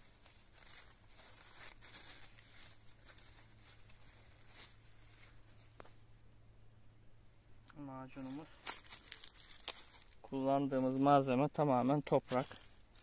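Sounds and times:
plastic film rustling and crinkling: 0.0 - 5.8, 8.2 - 11.1.

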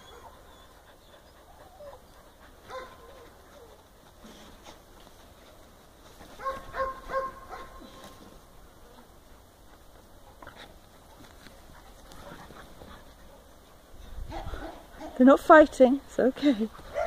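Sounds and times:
dogs scuffling and clicking: 9.7 - 13.4.

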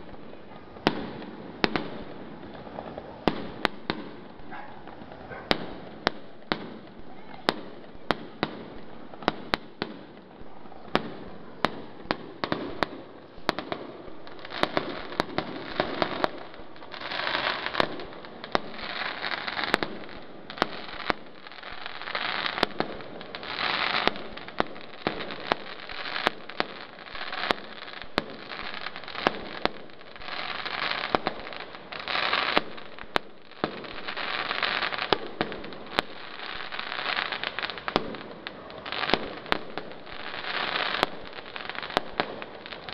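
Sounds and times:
fireworks hissing: 13.8 - 42.9.

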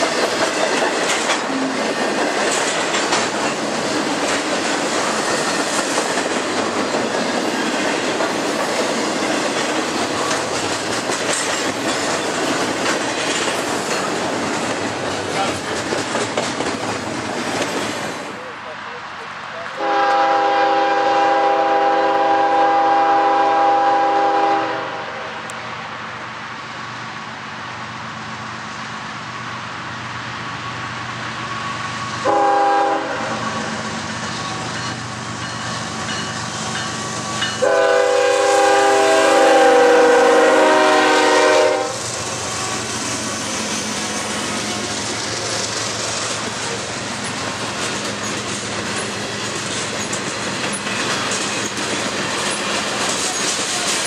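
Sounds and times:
train wheels clicking over rail joints: 0.0 - 18.4, 33.4 - 38.0, 40.6 - 54.0
locomotive horn blasts: 19.8 - 25.4, 32.2 - 33.4, 37.6 - 42.0.

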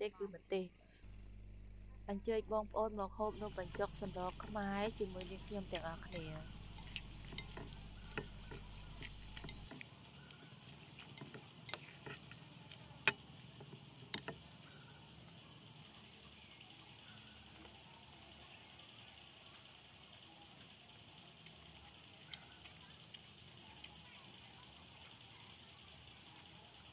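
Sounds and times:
chopsticks tapping ceramic bowl: 3.4 - 14.4.

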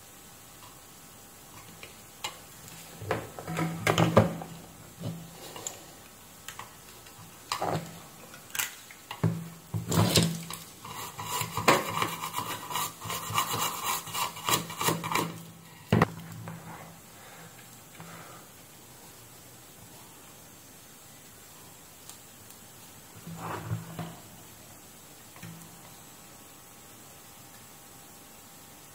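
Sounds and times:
rapid scratchy scraping: 10.8 - 15.4.

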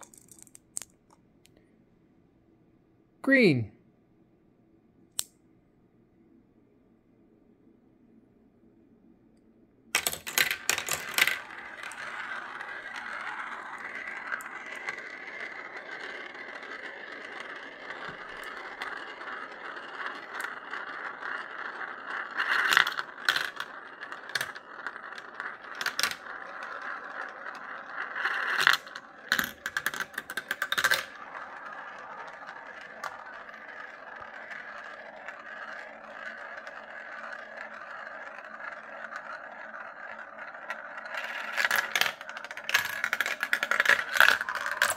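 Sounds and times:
marbles rolling on plastic run: 0.0 - 0.9, 10.0 - 44.9
marbles clacking against plastic: 0.0 - 1.0, 10.0 - 44.9.

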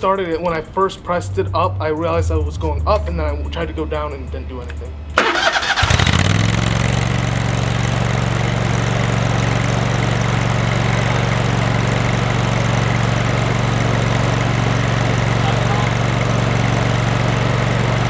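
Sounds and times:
mower engine idling: 5.1 - 18.0.

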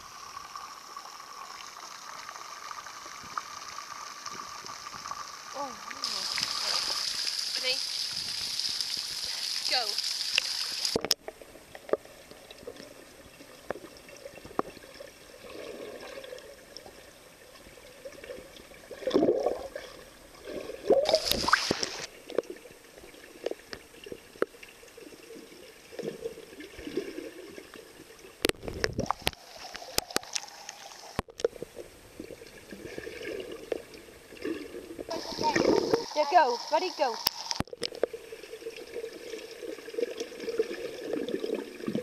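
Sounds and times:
water churning underwater: 0.0 - 42.0
rushes of bubbles: 4.4 - 24.3, 25.0 - 30.6, 31.4 - 42.0.

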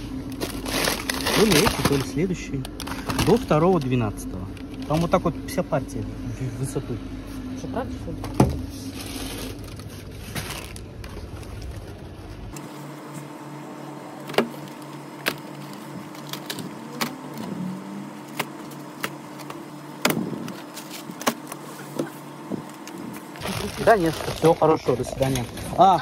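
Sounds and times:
freezer hum: 0.0 - 26.0.

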